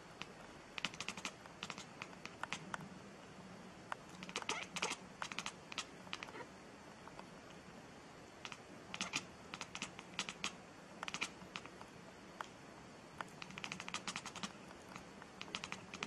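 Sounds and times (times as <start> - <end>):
cat chattering jaw clicks: 0.2 - 2.8, 4.2 - 6.4, 8.4 - 11.8, 13.2 - 16.0.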